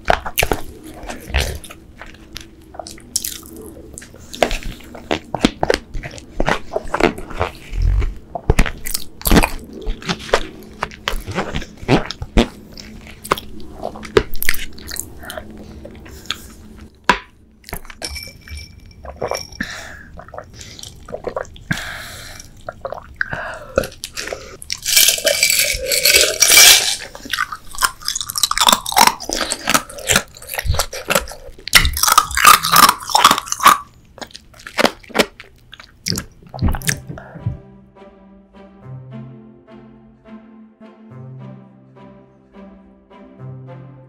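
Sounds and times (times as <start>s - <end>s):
crunchy chewing: 0.0s - 16.9s, 22.4s - 37.1s.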